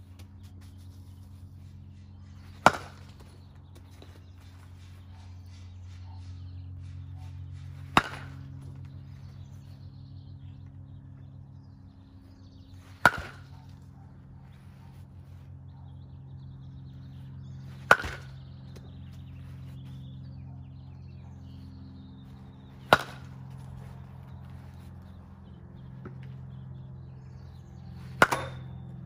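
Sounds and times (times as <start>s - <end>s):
steady low hum: 0.0s - 29.0s
baseball bat cracking ball: 2.3s - 4.1s, 7.2s - 9.0s, 12.8s - 13.8s, 17.1s - 19.3s, 22.3s - 24.9s, 27.4s - 29.0s.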